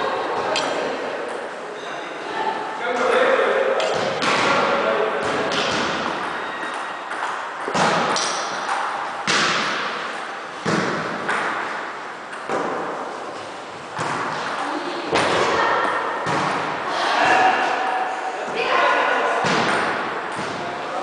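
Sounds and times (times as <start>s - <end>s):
sharp thuds and slaps echoing: 3.8s - 6.4s, 7.1s - 13.0s, 16.2s - 16.8s, 19.4s - 20.8s.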